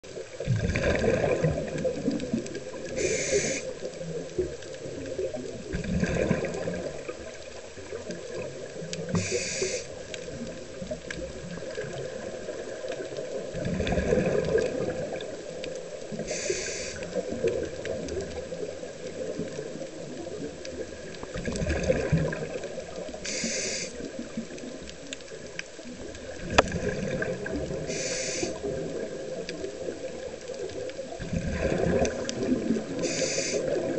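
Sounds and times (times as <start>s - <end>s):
exhaled air bubbling: 0.1s - 33.9s
regulator hiss: 2.9s - 3.8s, 9.1s - 10.0s, 16.2s - 17.1s, 23.2s - 24.0s, 27.8s - 28.6s, 33.0s - 33.8s.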